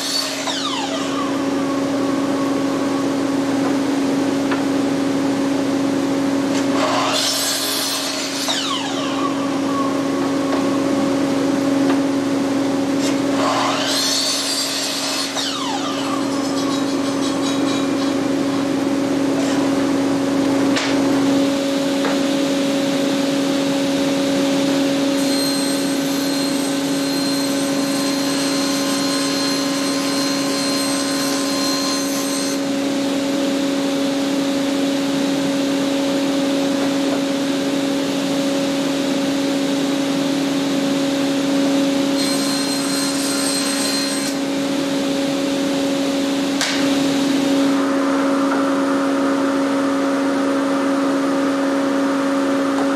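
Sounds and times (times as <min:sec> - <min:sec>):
power saws cutting panels: 0:00.0 - 0:23.4, 0:24.5 - 0:33.2, 0:41.0 - 0:49.2
steady machine hum: 0:00.7 - 0:06.5.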